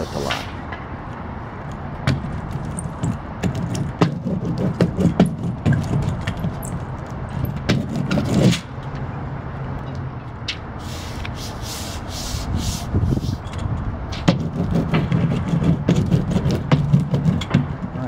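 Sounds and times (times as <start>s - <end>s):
hand rubbing tape: 1.7s - 8.7s, 10.8s - 13.6s, 14.2s - 18.0s.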